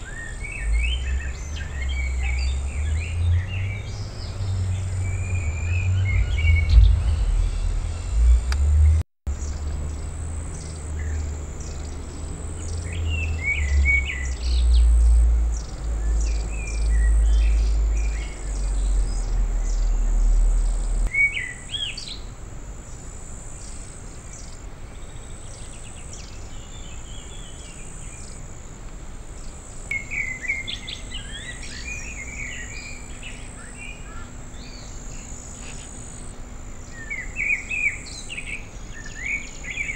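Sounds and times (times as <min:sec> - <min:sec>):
insect chirps: 0:00.0 - 0:39.9
wild birds chirping: 0:00.0 - 0:39.9
strong low rumble: 0:01.0 - 0:10.4, 0:17.5 - 0:21.1.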